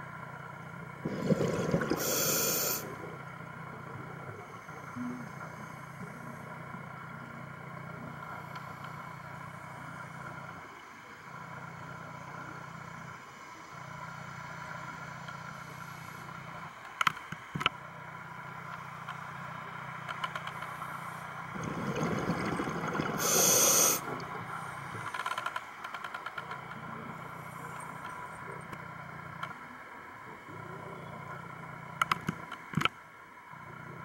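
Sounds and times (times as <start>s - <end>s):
low underwater hum: 0.0s - 34.0s
rush of exhaled bubbles: 1.0s - 3.0s, 21.5s - 24.5s.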